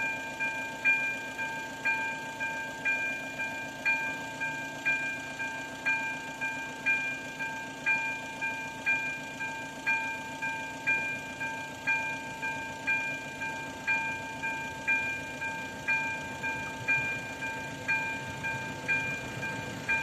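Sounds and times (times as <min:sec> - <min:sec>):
level crossing warning bell: 0:00.0 - 0:20.0.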